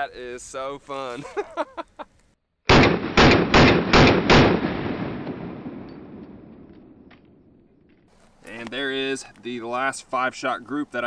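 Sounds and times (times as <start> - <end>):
pistol shots with echo: 2.7 - 7.1.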